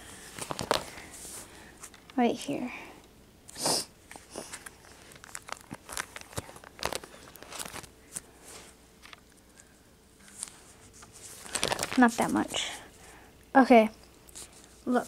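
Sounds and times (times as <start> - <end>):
plastic binder pages rustling: 0.3 - 2.1, 4.1 - 9.4, 10.2 - 12.6.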